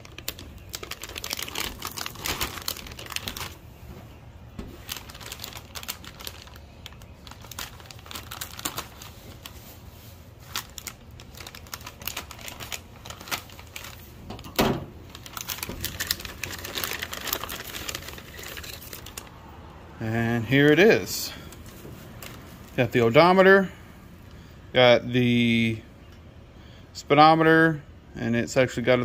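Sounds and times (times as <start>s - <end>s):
plastic bag crinkling: 0.0s - 19.5s, 20.4s - 23.4s.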